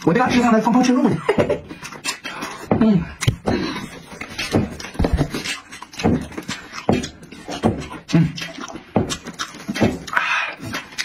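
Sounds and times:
chewing mouth smacks: 4.2 - 11.0.

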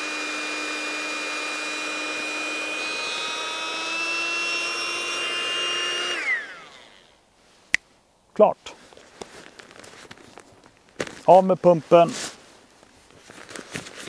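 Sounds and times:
pump fan motor whining: 0.0 - 7.1.

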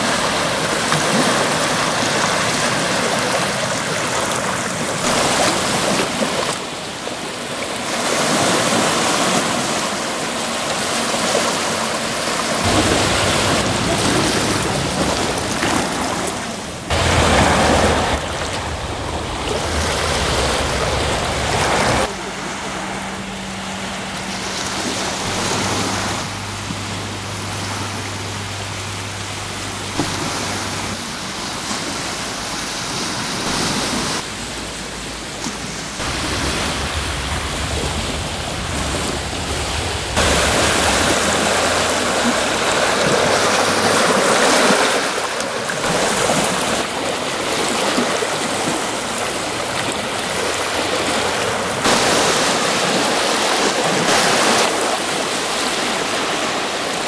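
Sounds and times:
waves washing onto shingle: 0.0 - 57.0
low hum: 12.6 - 31.1, 33.5 - 44.3.

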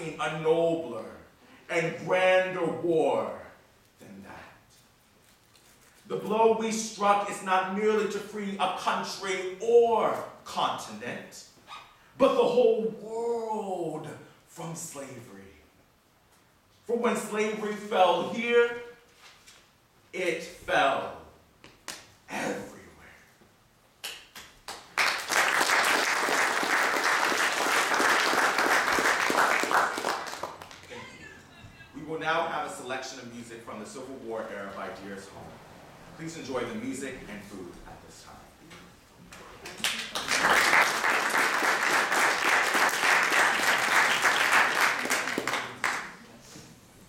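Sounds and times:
audience applauding: 24.7 - 31.1, 39.7 - 46.2.

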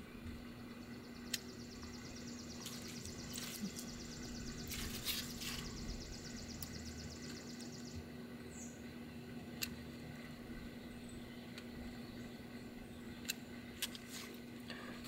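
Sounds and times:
handling noises: 2.6 - 5.9.

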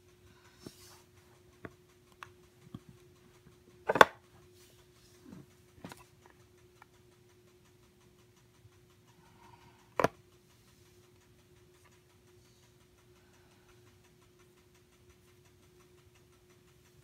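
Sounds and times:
plastic case clicks and taps: 3.9 - 4.2, 10.0 - 10.2.

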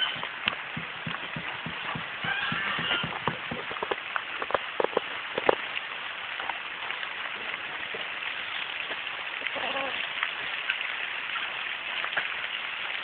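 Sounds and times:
sharp taps: 0.0 - 5.6
rain on leaves and grass: 0.0 - 13.0.

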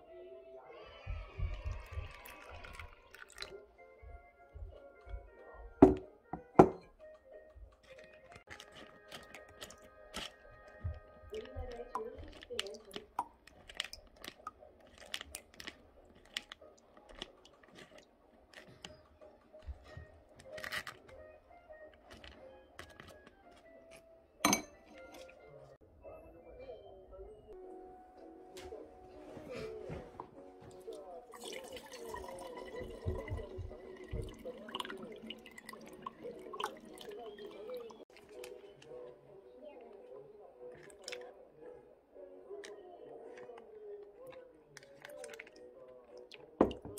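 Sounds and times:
liquid dripping: 1.4 - 3.6, 7.7 - 19.0, 30.9 - 38.9, 40.7 - 41.3, 44.3 - 46.9
paper filter crinkling: 7.8 - 19.0, 19.7 - 21.2, 22.0 - 24.0.

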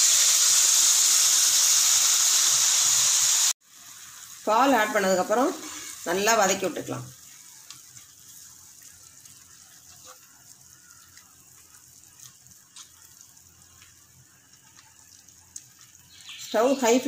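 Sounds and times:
food sizzling and bubbling in pan: 0.0 - 17.0.

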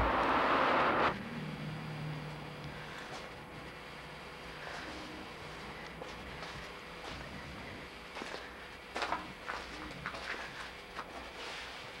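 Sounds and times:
low hum: 0.0 - 10.6
footsteps and shuffling: 4.6 - 12.0.

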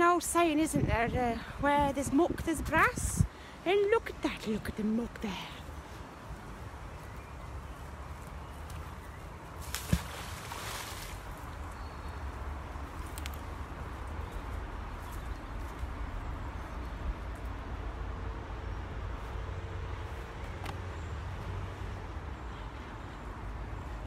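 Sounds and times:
faint sharp clicks: 13.0 - 13.5.

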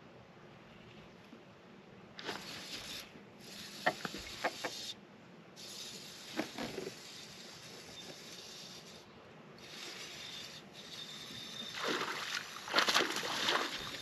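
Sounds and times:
wind: 0.0 - 14.0
water: 5.7 - 14.0.

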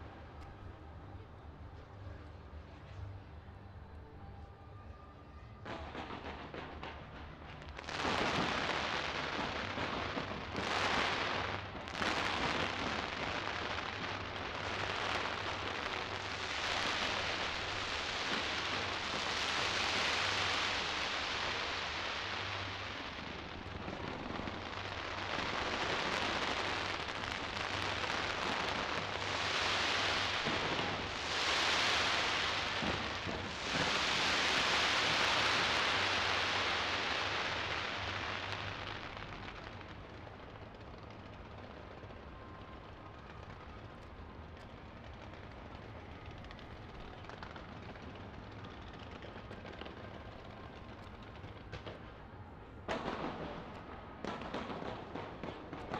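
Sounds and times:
fireworks crackling: 5.7 - 55.9.

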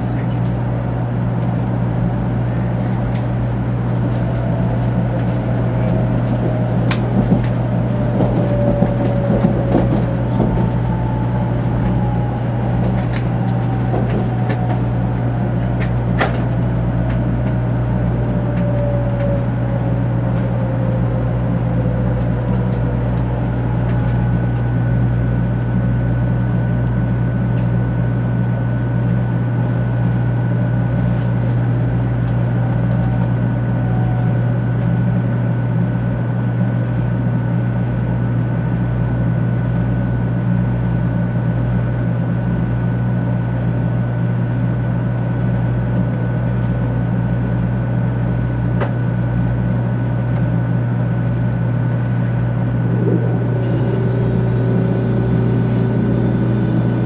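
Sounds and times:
train low hum and rumble: 0.0 - 57.0
motor whine falling in pitch: 52.0 - 57.0
steady high tone: 52.0 - 57.0.

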